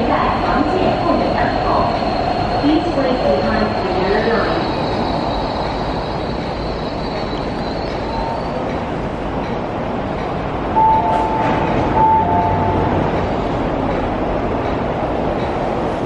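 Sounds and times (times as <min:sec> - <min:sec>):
rail rumble: 0:00.0 - 0:16.0
two-pitch electronic tone: 0:10.8 - 0:13.1.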